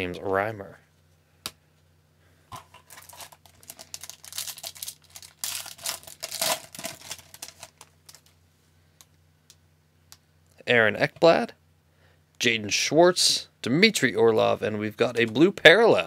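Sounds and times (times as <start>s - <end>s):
foil wrapper crinkling: 2.8s - 8.3s.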